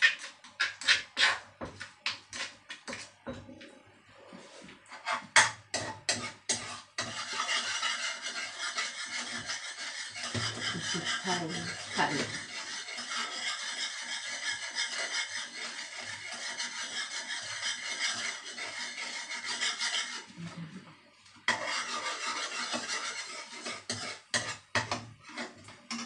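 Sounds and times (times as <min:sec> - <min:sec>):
utensil scraping metal pan: 0:00.0 - 0:03.2, 0:04.3 - 0:20.4, 0:21.5 - 0:26.0
utensil knocking on pan: 0:10.2 - 0:12.4, 0:23.9 - 0:25.1.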